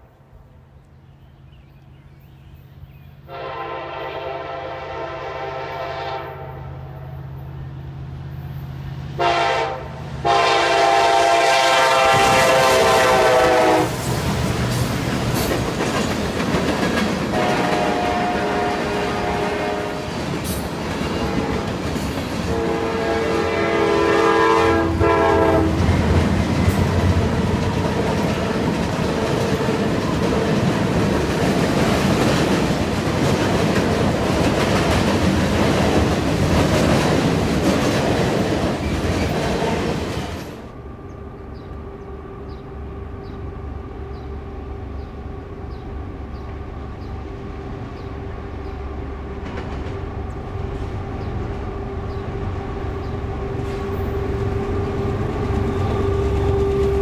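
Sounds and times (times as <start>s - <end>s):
distant locomotive humming: 0.0s - 57.0s
locomotive horn: 3.2s - 7.2s, 9.1s - 14.1s, 17.3s - 20.4s, 21.0s - 26.1s, 39.3s - 40.1s, 53.6s - 57.0s
train wheels clattering: 12.0s - 19.4s, 20.0s - 23.0s, 25.1s - 40.6s, 49.3s - 51.3s.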